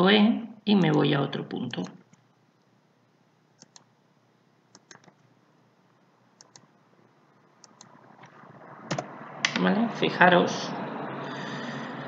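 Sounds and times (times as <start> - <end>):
computer mouse clicks: 3.6 - 3.9, 4.7 - 5.3, 6.4 - 6.7, 7.6 - 7.9.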